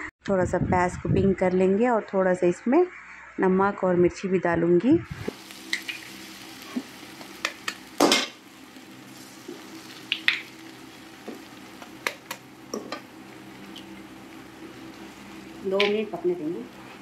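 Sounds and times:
eggs sizzling in hot oil: 5.1s - 17.0s.

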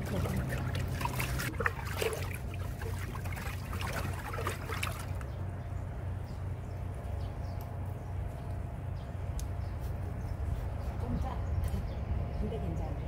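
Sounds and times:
food sloshing into liquid: 0.0s - 5.3s
low steady rumble: 0.0s - 13.0s.

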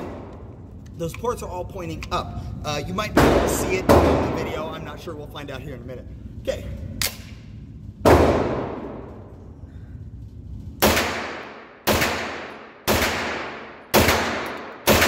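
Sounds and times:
carbine gunshots echoing indoors: 0.0s - 0.8s, 7.0s - 9.5s, 10.6s - 15.0s.

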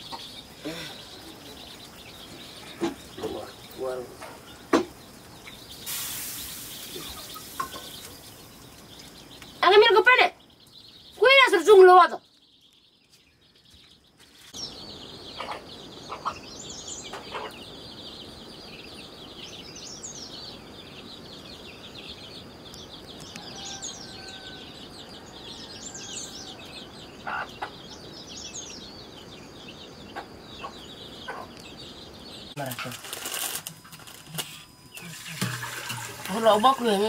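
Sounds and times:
hen clucking: 0.0s - 6.0s, 15.3s - 17.8s, 26.0s - 28.0s, 30.0s - 31.9s
chicks peeping: 0.0s - 35.5s.

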